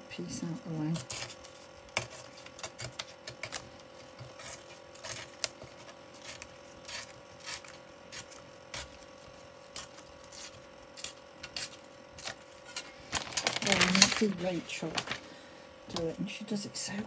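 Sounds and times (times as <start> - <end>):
faint steady hum: 0.0 - 17.0
paper rustling and scraping: 11.6 - 15.3.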